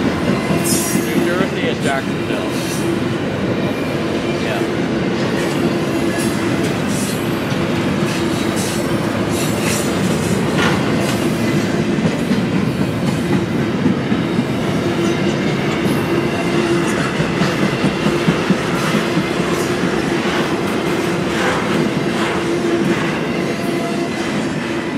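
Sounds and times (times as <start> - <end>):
train wheels rumbling on track: 0.0 - 24.9
clatter over rail joints: 5.2 - 14.0.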